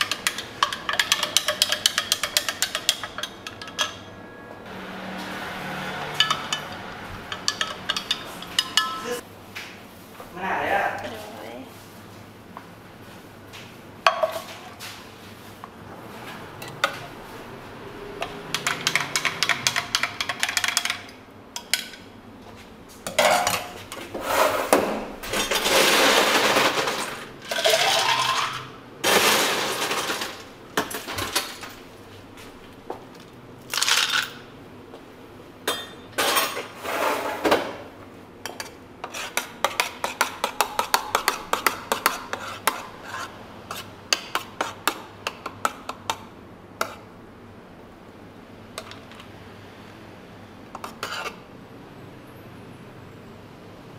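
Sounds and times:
glasses and utensils clinking: 0:06.1 - 0:09.2.

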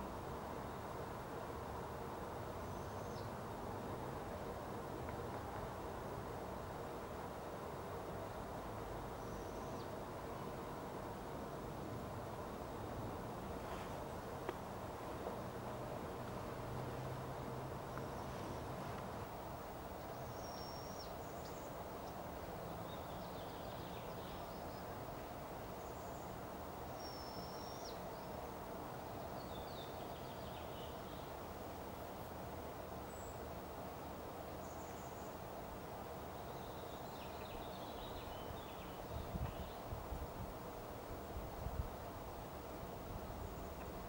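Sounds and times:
steady background noise: 0:00.0 - 0:44.0.

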